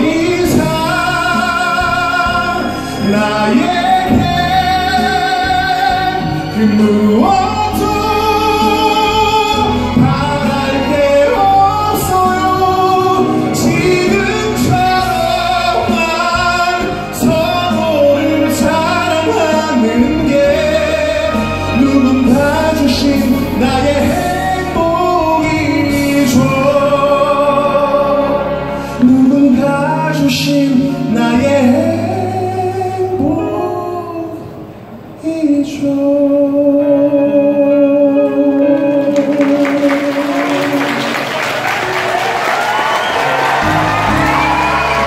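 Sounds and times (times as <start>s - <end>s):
man singing ballad: 0.0s - 41.1s
sustained musical accompaniment: 0.0s - 45.0s.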